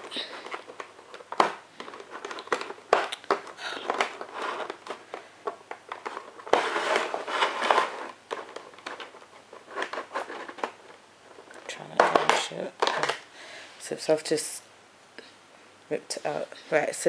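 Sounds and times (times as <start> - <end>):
plastic tray crinkling and clicking: 0.0 - 13.3.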